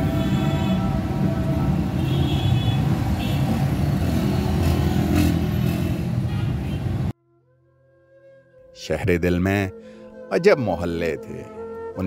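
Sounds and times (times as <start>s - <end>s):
cars running close by: 0.0s - 7.1s
motorcycles running: 0.0s - 7.1s.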